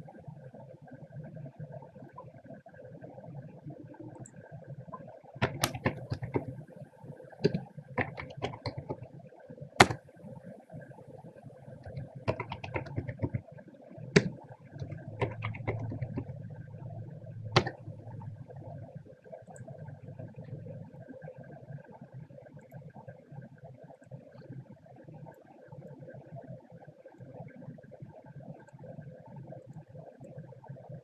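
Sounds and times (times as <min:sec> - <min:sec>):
keyboard typing: 0:05.4 - 0:06.6, 0:07.4 - 0:09.1, 0:09.8 - 0:10.0, 0:11.7 - 0:13.5, 0:14.1 - 0:18.8
louder single clicks: 0:09.8 - 0:10.0
steady low hum: 0:11.4 - 0:21.1.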